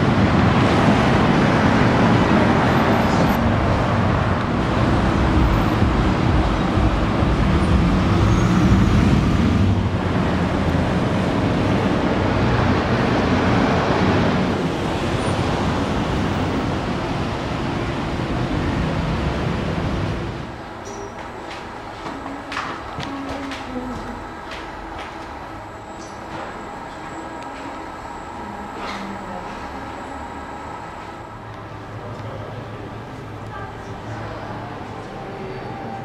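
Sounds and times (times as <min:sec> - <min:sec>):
passing cars: 0:00.0 - 0:23.0.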